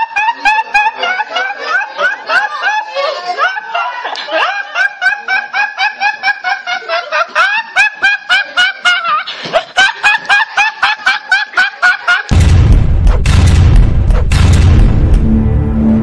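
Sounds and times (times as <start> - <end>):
man laughing: 0.0 - 12.3.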